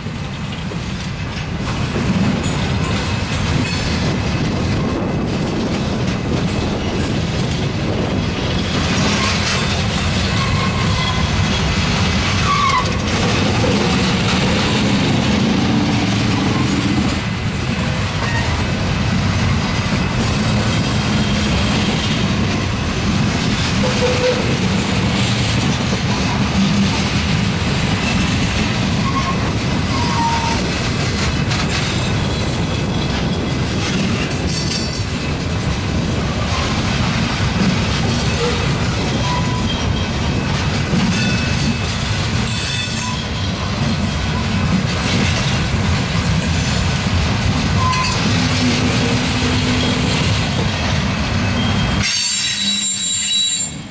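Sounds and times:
train wheels rumbling on rail: 0:00.0 - 0:53.9
wheel squeals: 0:10.2 - 0:11.8, 0:12.4 - 0:13.9, 0:29.0 - 0:30.7, 0:38.3 - 0:40.2, 0:42.5 - 0:43.6, 0:47.8 - 0:50.2, 0:51.4 - 0:53.9.

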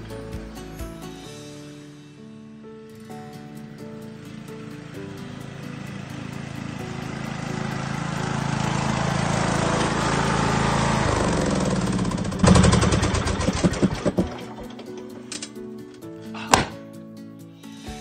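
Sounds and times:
lawn mower engine running: 0:03.0 - 0:15.6
engine clatter: 0:04.0 - 0:15.6
engine pops: 0:11.4 - 0:15.5.

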